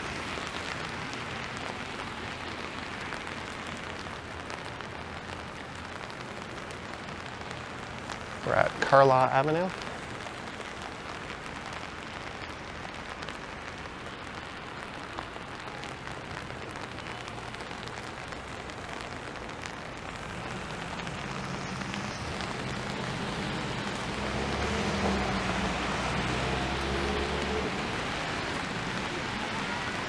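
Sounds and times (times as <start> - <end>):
rain on wet pavement: 0.0 - 30.0
vehicle engine hum: 20.0 - 30.0.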